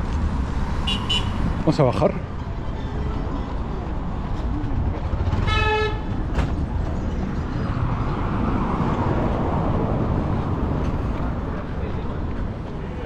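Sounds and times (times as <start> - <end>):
passing street traffic rumble: 0.0 - 13.0
vehicle horn toot: 0.8 - 1.4, 5.4 - 6.1.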